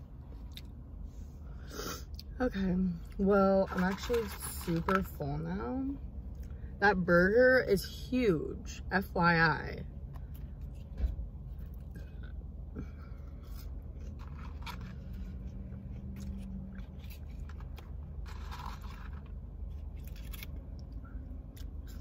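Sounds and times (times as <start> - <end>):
paper packaging rustling: 3.7 - 5.1, 14.0 - 15.4, 16.2 - 20.6.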